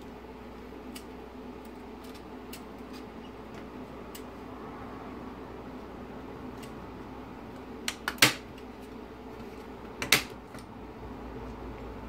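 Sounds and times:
sharp plastic and metal clicks: 7.8 - 8.7.

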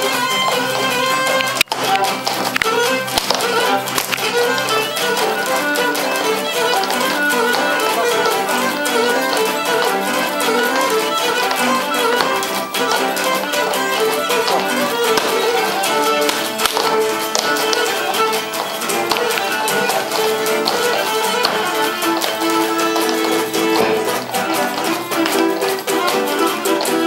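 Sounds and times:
bowed string melody: 0.0 - 27.0
strummed and plucked lute: 0.0 - 27.0.

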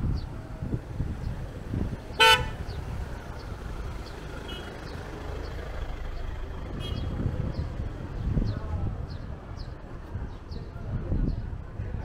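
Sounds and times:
low outdoor rumble: 0.0 - 12.0
horn toot: 2.2 - 2.7.

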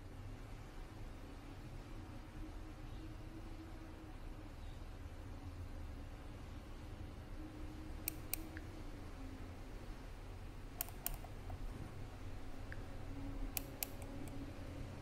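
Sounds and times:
low steady hum: 0.0 - 15.0
faint sharp clicks: 8.0 - 8.7, 10.8 - 11.6, 13.5 - 14.4.

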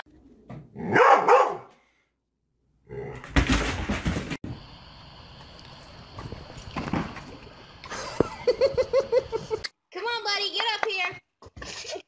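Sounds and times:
dog barking: 0.8 - 1.7.

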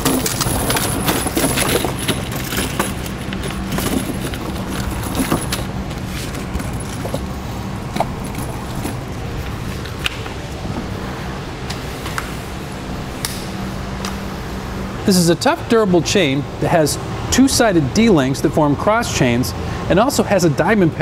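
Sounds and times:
metal tire chain clinking: 0.0 - 10.0
low hum: 0.0 - 16.7.

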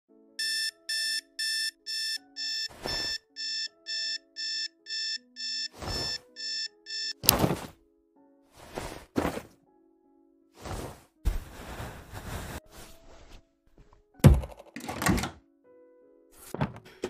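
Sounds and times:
alarm clock beeping: 0.4 - 7.3.

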